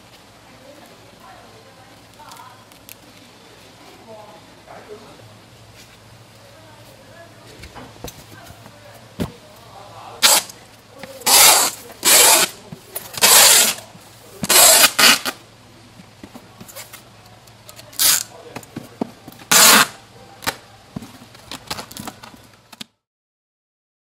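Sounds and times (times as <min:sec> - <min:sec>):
packing tape ripping off dispenser: 0:10.2 - 0:10.6, 0:11.2 - 0:15.4, 0:17.7 - 0:18.4, 0:19.4 - 0:20.6.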